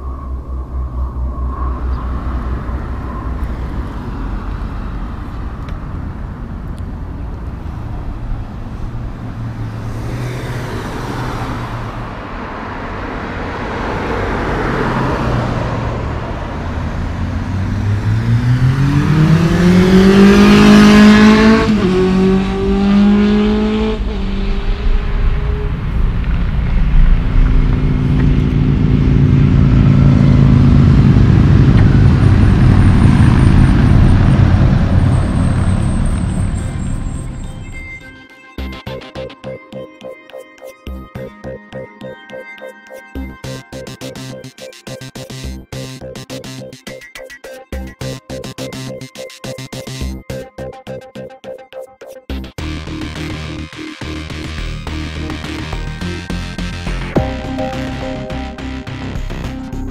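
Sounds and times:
heavy truck engine droning: 0:00.0 - 0:39.4, 0:52.6 - 0:59.9
vehicles passing: 0:00.0 - 0:51.5, 0:52.2 - 0:59.9
car engine accelerating past: 0:07.7 - 0:37.9.

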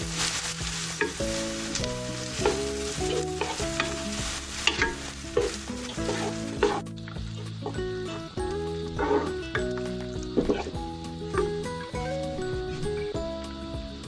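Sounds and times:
onions sizzling in hot oil: 0:00.0 - 0:11.7
wooden spatula scraping pan: 0:00.9 - 0:06.9.

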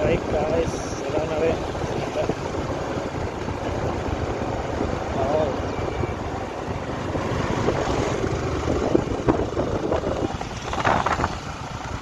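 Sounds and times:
motorcycle engine running: 0:00.0 - 0:12.0
wind buffeting microphone: 0:06.5 - 0:12.0.

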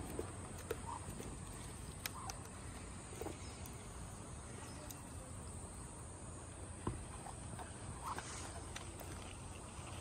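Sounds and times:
duck pecking on wooden deck: 0:00.0 - 0:03.7.

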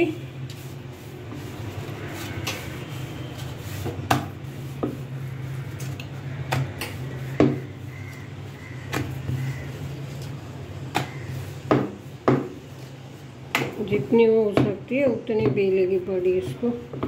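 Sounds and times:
rolling pin rolling dough: 0:00.0 - 0:17.0
rolling pin knocking on board: 0:07.4 - 0:07.6, 0:11.0 - 0:12.6.

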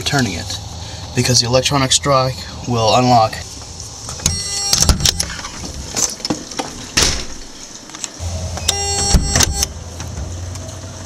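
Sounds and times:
door lock buzzer: 0:04.2 - 0:05.5, 0:08.2 - 0:09.7
door clicks and knocks: 0:04.2 - 0:07.6, 0:08.7 - 0:09.7.

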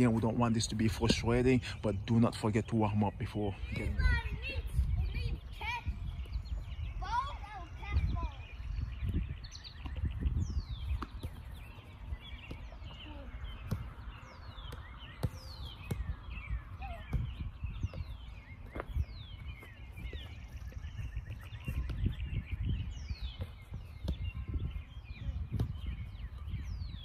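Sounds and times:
birds whistling: 0:02.7 - 0:27.0
ball kicked on grass: 0:09.0 - 0:27.0.

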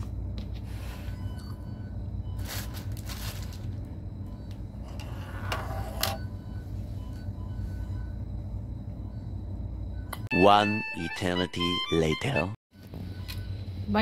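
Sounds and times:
low room hum: 0:00.0 - 0:12.1
rustling and handling noises: 0:02.4 - 0:03.9.

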